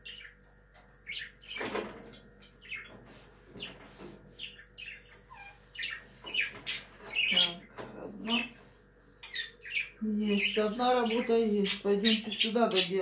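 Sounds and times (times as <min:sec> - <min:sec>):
small bird chirping: 0:00.0 - 0:01.7, 0:02.4 - 0:08.6, 0:09.2 - 0:13.0.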